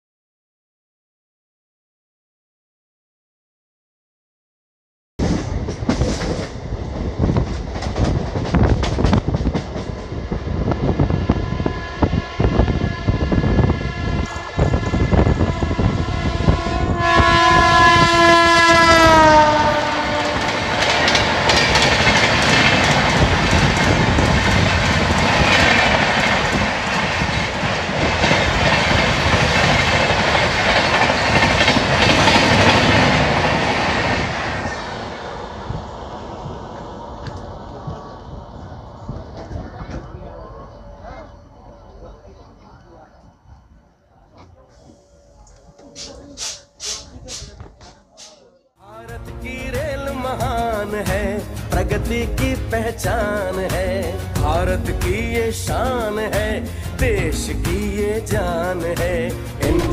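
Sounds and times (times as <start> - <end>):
train wheels clacking over rail joints: 5.2 - 10.2, 19.1 - 34.6, 45.8 - 48.4
locomotive horn: 11.0 - 22.2.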